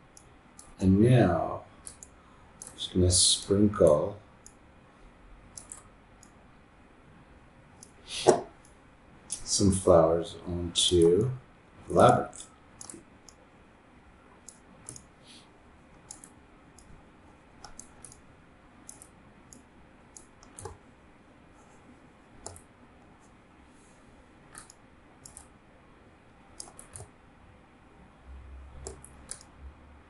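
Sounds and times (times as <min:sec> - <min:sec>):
faint room hiss: 0:00.0 - 0:30.0
computer mouse clicks: 0:00.1 - 0:00.8, 0:01.8 - 0:02.8, 0:05.5 - 0:06.4, 0:11.9 - 0:13.4, 0:14.4 - 0:15.1, 0:15.9 - 0:17.0, 0:17.6 - 0:20.8, 0:22.4 - 0:22.7, 0:24.5 - 0:25.6, 0:26.5 - 0:27.2, 0:28.8 - 0:29.6.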